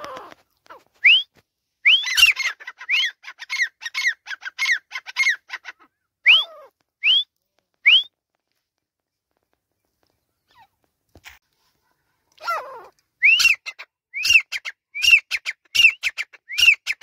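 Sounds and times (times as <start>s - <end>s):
francolin calling: 12.4s - 17.0s.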